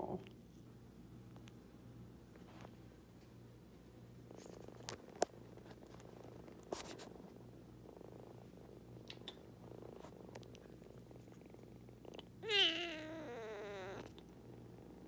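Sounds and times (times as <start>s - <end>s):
kitten purring: 0.0s - 1.6s, 4.1s - 15.0s
kitten meowing: 12.4s - 14.1s.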